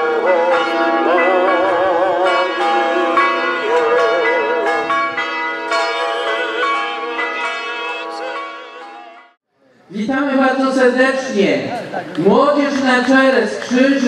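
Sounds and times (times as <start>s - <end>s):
person singing with vibrato: 0.0s - 8.4s
church bells pealing: 0.0s - 9.4s.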